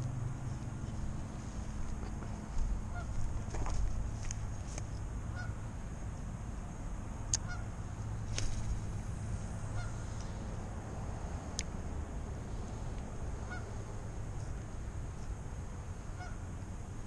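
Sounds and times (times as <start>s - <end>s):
low steady rumble: 0.0s - 17.0s
geese honking faintly: 0.8s - 3.6s, 5.3s - 5.6s, 7.4s - 7.8s, 9.6s - 10.4s, 13.4s - 14.6s, 15.9s - 16.6s.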